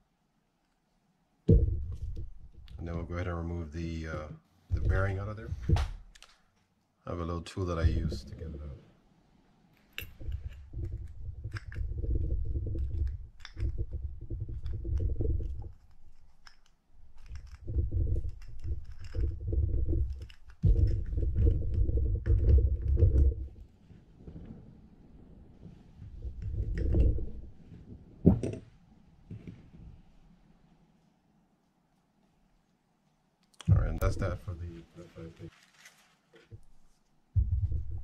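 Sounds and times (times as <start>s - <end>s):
low rumbling handling noise: 4.0s - 6.1s, 7.7s - 8.8s, 10.0s - 30.2s, 33.7s - 35.5s
small metal clicks and scraping: 9.8s - 23.3s.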